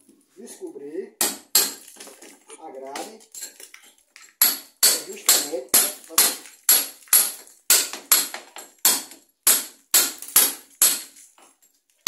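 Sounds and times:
hammer striking chisel into render: 1.2 - 1.9, 4.4 - 11.2.

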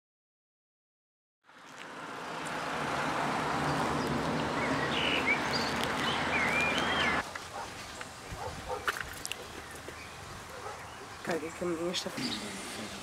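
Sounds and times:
birds chirping: 1.6 - 13.0.

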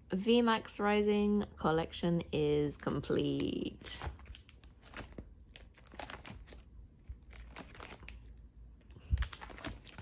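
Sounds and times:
plastic pages crinkling: 3.3 - 10.0.

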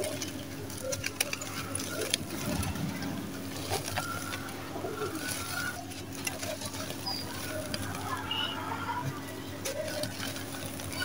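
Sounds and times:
crumbs pattering down: 0.0 - 11.0
gritty crackle of crumbling cement: 0.0 - 11.0.

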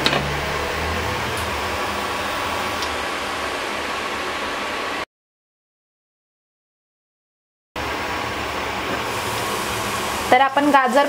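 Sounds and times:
carrots sizzling in a covered pan: 8.4 - 11.0.

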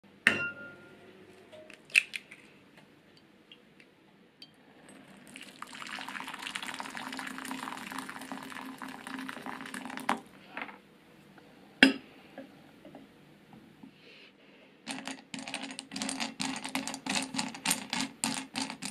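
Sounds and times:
glass bowl knocking: 0.3 - 0.9
glass bowls clinking: 0.3 - 1.0
water pouring into glass bowl: 5.0 - 10.2.

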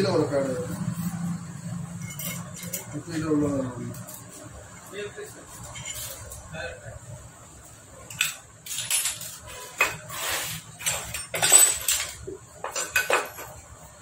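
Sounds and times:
metal engine parts clinking: 2.0 - 3.0, 10.8 - 13.6.

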